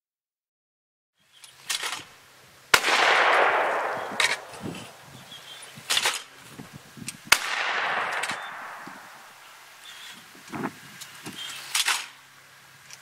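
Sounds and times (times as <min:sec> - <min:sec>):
shotgun shots with echo: 0:02.7 - 0:06.3, 0:07.3 - 0:09.4.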